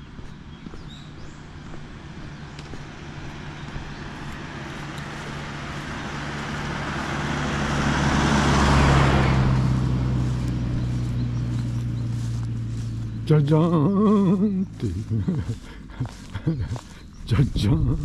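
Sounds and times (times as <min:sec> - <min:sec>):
vehicle passing with tyre noise: 0:00.0 - 0:18.0.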